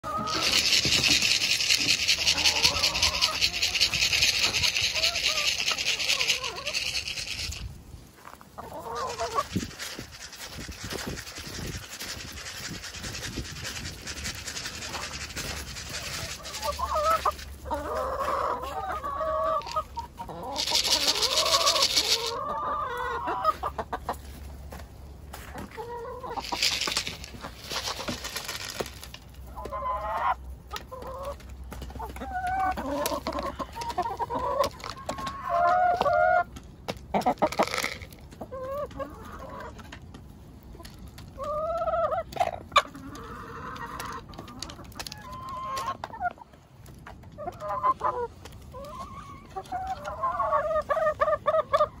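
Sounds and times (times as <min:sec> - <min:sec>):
hens clucking: 0:00.0 - 0:52.0
rustling noise: 0:00.2 - 0:18.4, 0:19.6 - 0:22.4, 0:23.5 - 0:29.5, 0:37.4 - 0:38.4.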